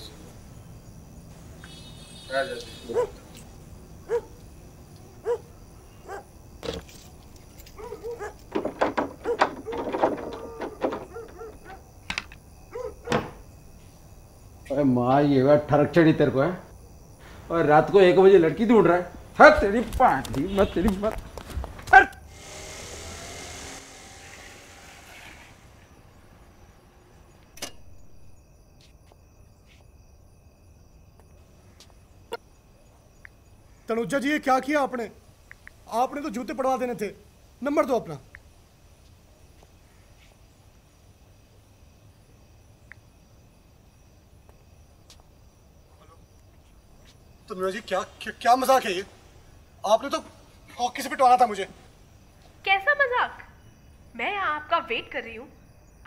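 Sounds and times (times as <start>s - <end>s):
crickets chirping: 0.0s - 56.0s
dog barking: 2.8s - 3.2s, 4.0s - 4.4s, 5.2s - 6.3s, 7.8s - 8.4s, 11.1s - 11.8s, 12.7s - 13.1s, 21.9s - 22.3s
sharp click: 27.6s - 27.9s.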